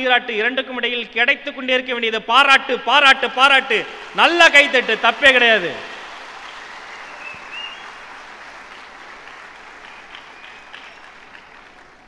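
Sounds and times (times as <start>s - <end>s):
large audience applauding: 3.5s - 12.0s.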